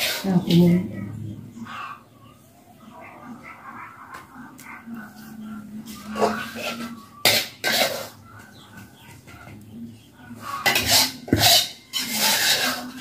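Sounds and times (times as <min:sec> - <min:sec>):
rustling and scraping on leaves: 0:10.4 - 0:13.0.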